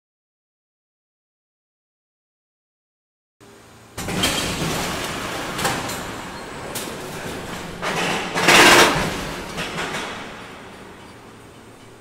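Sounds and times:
rush of mechanical noise: 3.4 - 12.0.

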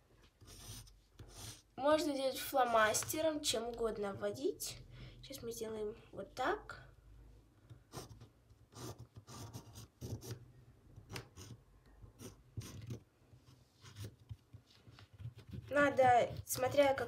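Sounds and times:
pencil scratching on fabric: 0.4 - 1.7, 7.9 - 10.4, 11.1 - 17.0.

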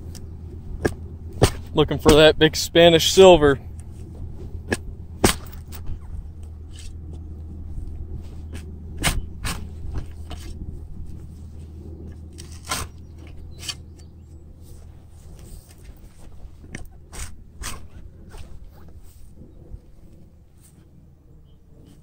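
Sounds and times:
steady low rumble: 0.0 - 22.0
shovel crunching into sod: 8.2 - 13.8, 14.7 - 19.3.

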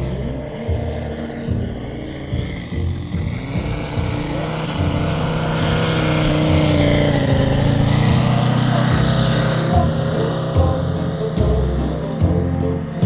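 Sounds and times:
model plane radial engine: 0.0 - 13.0.

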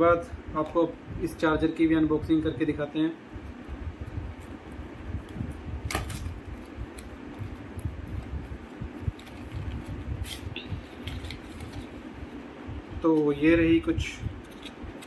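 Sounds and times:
low fan hum: 0.0 - 15.0.

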